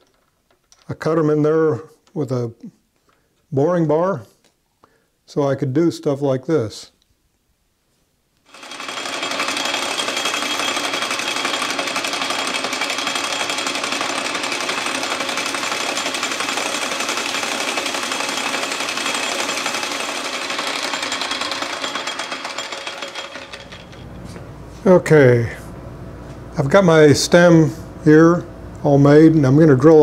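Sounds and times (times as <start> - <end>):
metal lathe running: 8.5 - 24.2.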